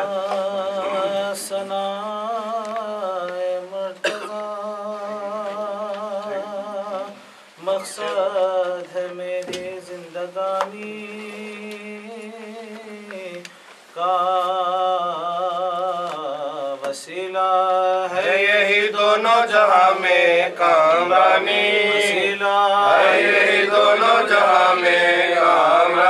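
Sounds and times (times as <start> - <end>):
man chanting into a microphone: 0.0 - 13.4.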